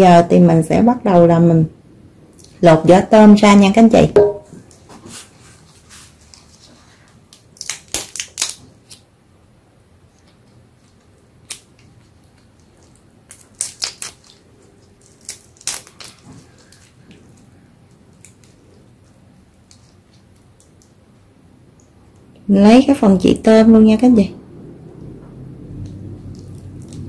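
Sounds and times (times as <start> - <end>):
shrimp shells crackling: 7.2 - 9.0, 10.8 - 21.0.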